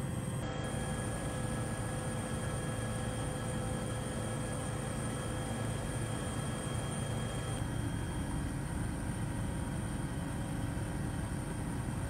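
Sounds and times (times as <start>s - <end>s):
helicopter engine and rotor drone: 0.0s - 12.0s.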